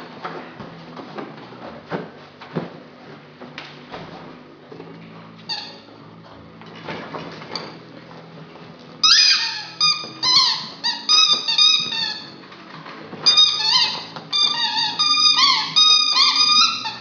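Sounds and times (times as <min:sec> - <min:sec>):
soft knocks and rustling: 0:00.1 - 0:05.4
squeaky dog toy squeaking: 0:05.4 - 0:05.9, 0:09.0 - 0:12.4, 0:13.2 - 0:17.0.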